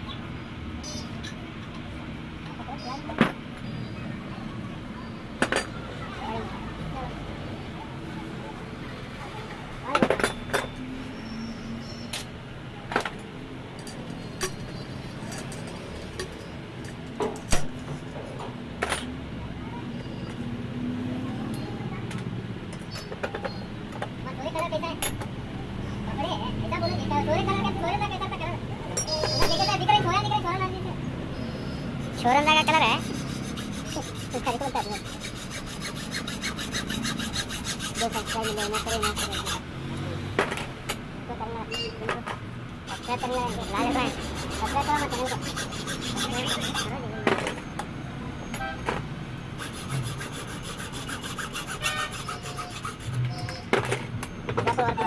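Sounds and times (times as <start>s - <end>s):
hacksaw sawing through metal: 32.0s - 39.7s, 42.8s - 47.0s, 49.6s - 53.7s.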